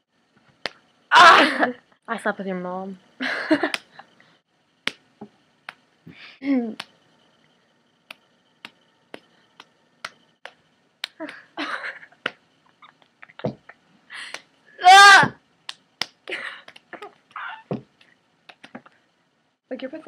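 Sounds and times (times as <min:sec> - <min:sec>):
sharp snapping clicks: 0:06.8 - 0:07.0, 0:08.1 - 0:11.4.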